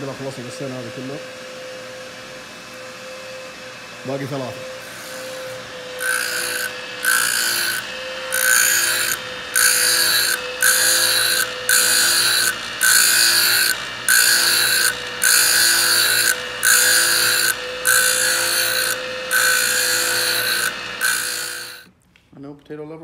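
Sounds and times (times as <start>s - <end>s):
grinding on abrasive wheel: 4.2s - 21.9s.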